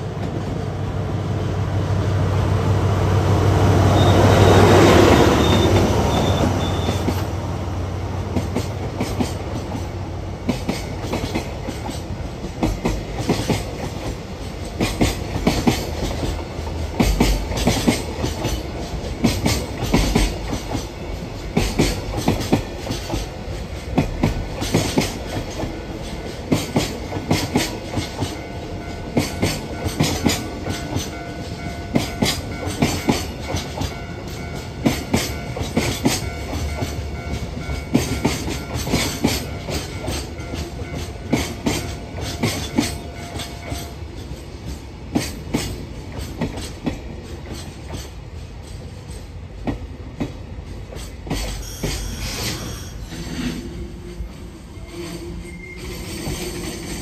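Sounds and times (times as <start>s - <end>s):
train wheels clacking over rail joints: 8.2s - 53.0s.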